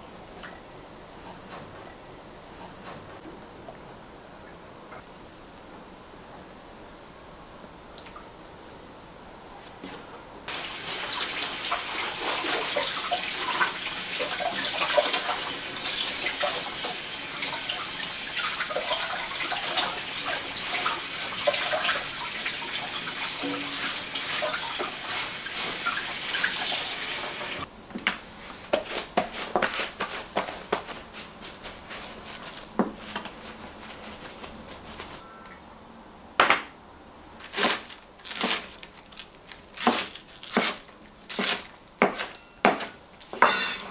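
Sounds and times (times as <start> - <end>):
tap water splashing: 16.2 - 27.6.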